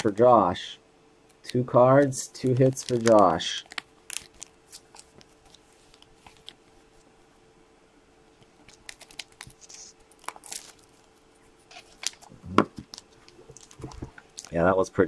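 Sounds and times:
plastic case crinkling and clicking: 2.4s - 6.6s, 11.8s - 14.5s.

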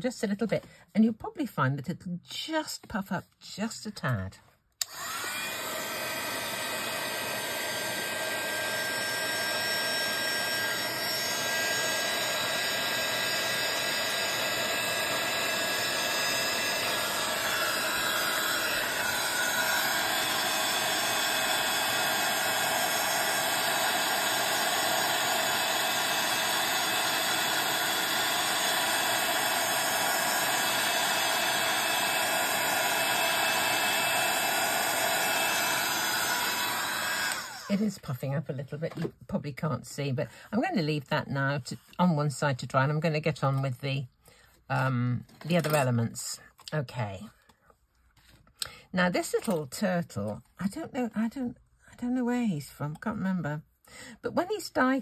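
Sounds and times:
heat tool whirring hiss: 4.8s - 37.9s.

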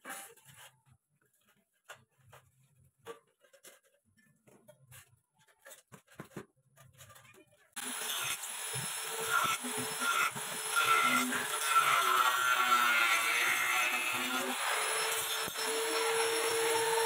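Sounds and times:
angle grinder cutting plastic pipe: 7.8s - 17.0s.

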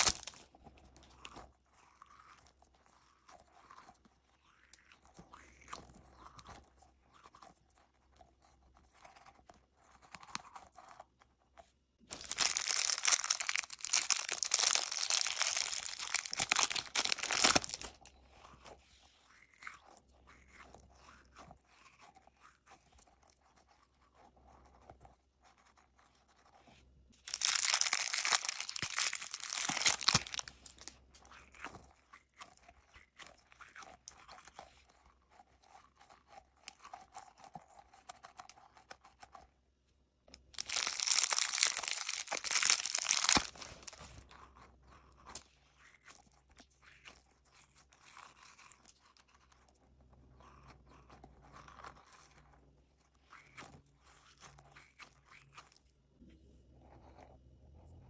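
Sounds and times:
plastic wrapper crinkling: 0.0s - 0.5s, 12.1s - 18.1s, 27.2s - 31.0s, 40.4s - 44.3s.

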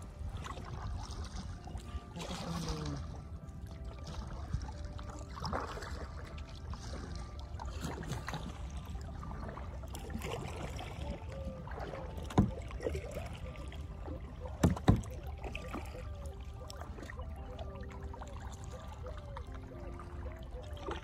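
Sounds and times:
paddle splashing in water: 0.0s - 21.0s.

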